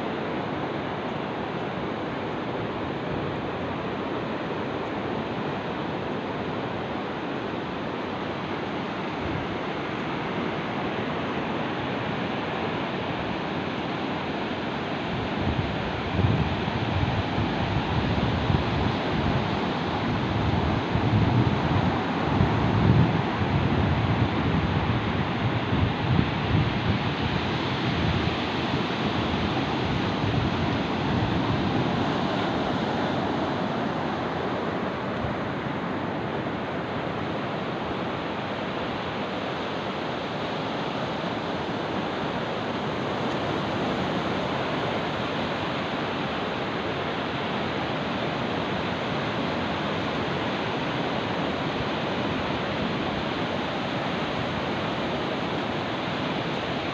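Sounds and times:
small waves washing up beach: 0:00.0 - 0:56.9
wind buffeting microphone: 0:15.0 - 0:37.8.

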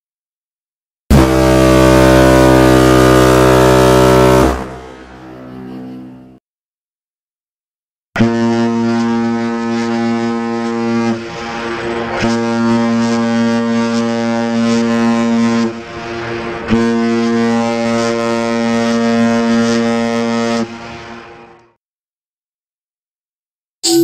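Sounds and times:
ship's horn blasts: 0:01.1 - 0:06.4, 0:08.2 - 0:21.8.

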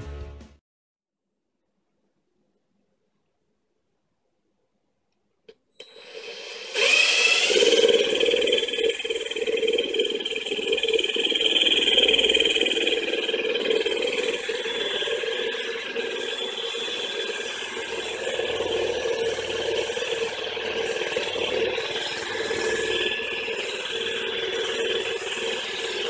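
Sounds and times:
cordless drill motor whine: 0:05.8 - 0:26.0.

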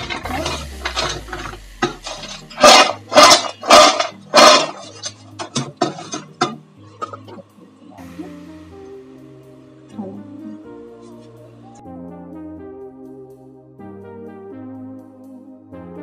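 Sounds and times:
snacks rattling in steel bowl: 0:02.1 - 0:06.3.

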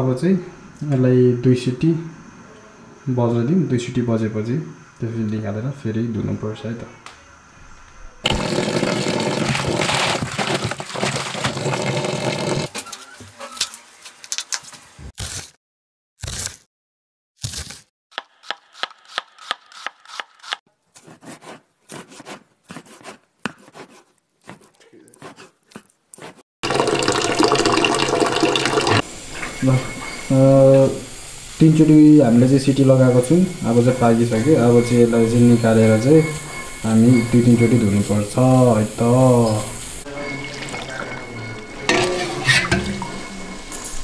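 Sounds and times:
pressure cooker hissing steam: 0:27.7 - 0:43.6.

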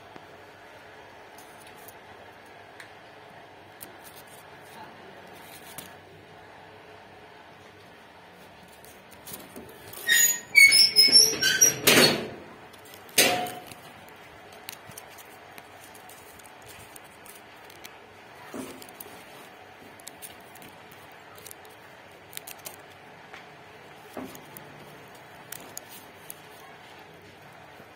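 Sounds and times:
wire cage rattling and squeaking: 0:09.2 - 0:14.0.

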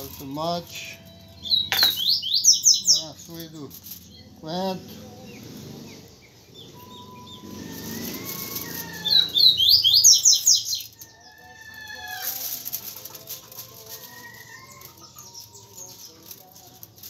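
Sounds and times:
aluminium foil crinkling: 0:03.0 - 0:04.2, 0:07.6 - 0:09.4, 0:10.6 - 0:17.0.

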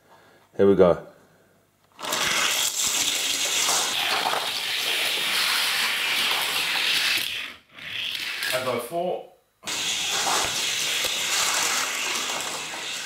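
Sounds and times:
toy cars rolling on plastic track: 0:02.0 - 0:08.6, 0:09.7 - 0:13.0.

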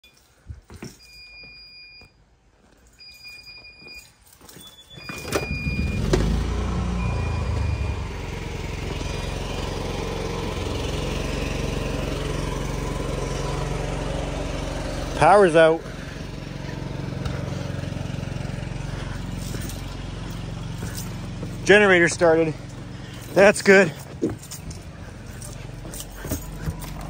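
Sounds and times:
generator starting and running: 0:03.2 - 0:27.0
electronic beeper beeping: 0:06.9 - 0:08.3.

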